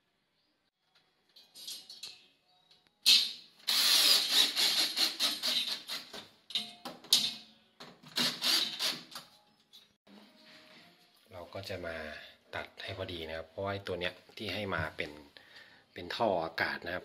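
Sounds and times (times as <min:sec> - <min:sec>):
cordless drill driving screws: 0:03.7 - 0:06.0, 0:08.2 - 0:09.0.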